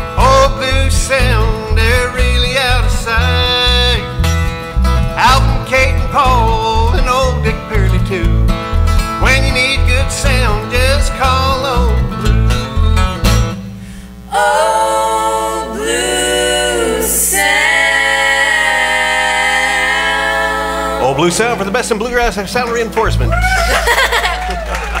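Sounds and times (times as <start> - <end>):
low bass line: 0.0 - 14.3, 21.0 - 23.9
bluegrass jingle with acoustic guitars: 0.0 - 14.6, 15.8 - 24.7
women singing close harmony: 14.3 - 21.1.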